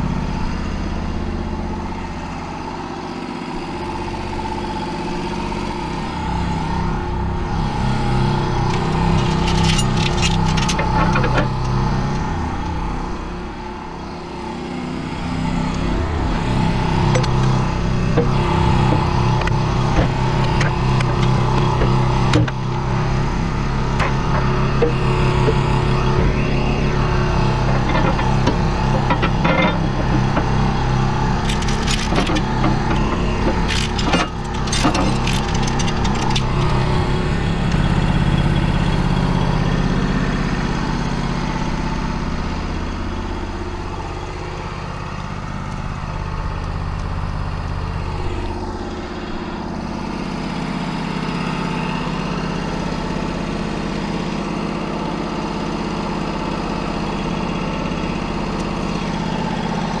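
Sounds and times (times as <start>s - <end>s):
engine running: 0.0s - 60.0s
metal chain clanking and rattling: 8.7s - 12.3s, 27.7s - 36.9s.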